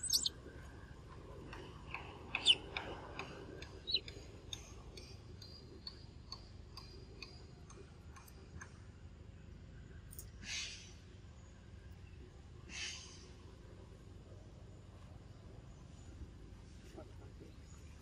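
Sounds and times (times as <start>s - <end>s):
high rising chirp: 0.0s - 0.3s
faint irregular clicking: 1.4s - 8.8s.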